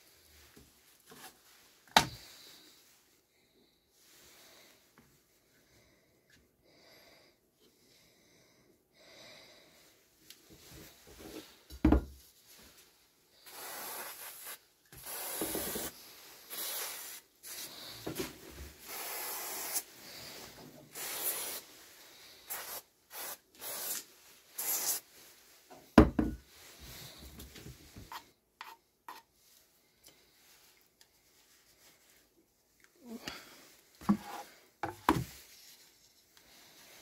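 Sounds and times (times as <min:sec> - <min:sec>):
aerosol spray can hissing: 0:13.4 - 0:17.7, 0:18.8 - 0:19.9, 0:20.9 - 0:21.7, 0:22.5 - 0:25.1.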